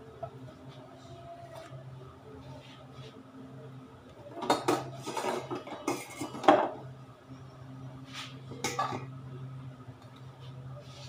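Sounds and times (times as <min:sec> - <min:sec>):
metal kitchenware clinking: 0:04.4 - 0:06.8, 0:08.5 - 0:09.1.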